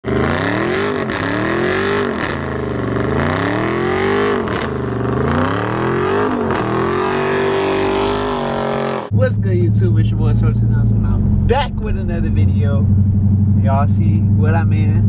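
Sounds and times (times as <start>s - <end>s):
car engine revving hard: 0.0s - 9.1s.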